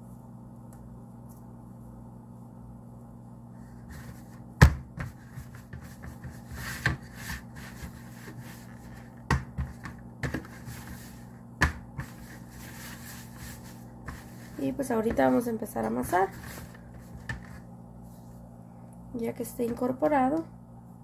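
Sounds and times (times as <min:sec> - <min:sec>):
dough knocking onto plastic tray: 0:04.6 - 0:05.2, 0:09.2 - 0:10.5, 0:11.6 - 0:12.1
hands rubbing and scraping flour: 0:05.0 - 0:18.4.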